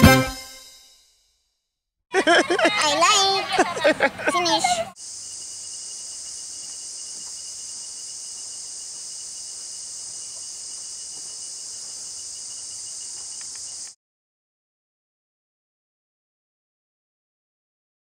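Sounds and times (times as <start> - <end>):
insects chorus: 5.0 - 14.0.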